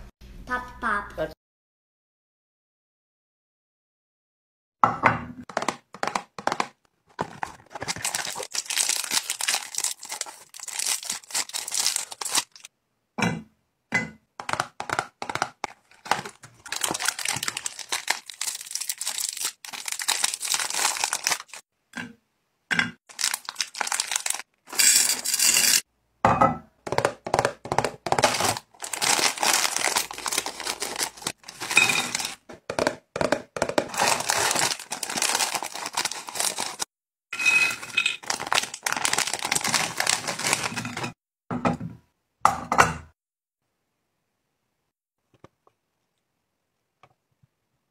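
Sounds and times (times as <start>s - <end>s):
snack wrappers crinkling: 5.5s - 12.7s, 14.4s - 21.6s, 23.1s - 25.3s, 28.1s - 32.4s, 33.8s - 36.9s, 37.7s - 41.2s.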